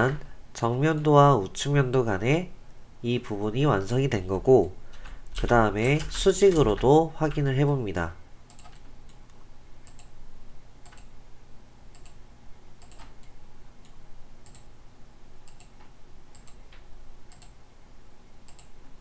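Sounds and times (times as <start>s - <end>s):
faint steady hum: 0.0s - 19.0s
computer mouse clicking: 8.5s - 10.2s, 10.8s - 11.1s, 11.9s - 12.2s, 12.8s - 14.7s, 15.4s - 17.6s, 18.4s - 18.8s.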